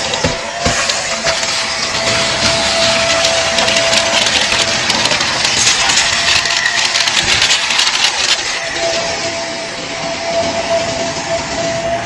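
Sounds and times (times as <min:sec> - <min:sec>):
vacuum cleaner running: 0:00.0 - 0:12.0
debris rattling up vacuum wand: 0:00.1 - 0:09.4.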